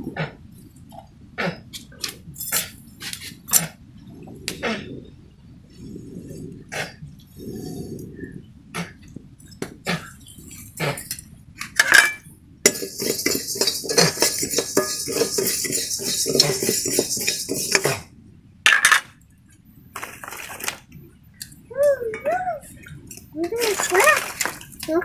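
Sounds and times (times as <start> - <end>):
steady hiss: 1.5 - 18.3
metal spoon scraping a pan: 10.7 - 18.1.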